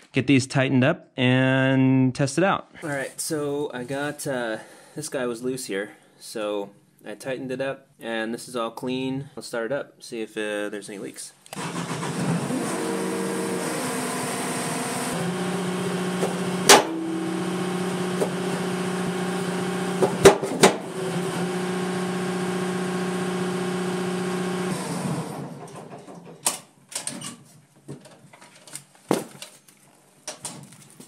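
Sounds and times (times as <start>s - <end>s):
engine idling: 14.4s - 20.1s
sharp knocks: 16.2s - 17.1s, 20.0s - 20.9s.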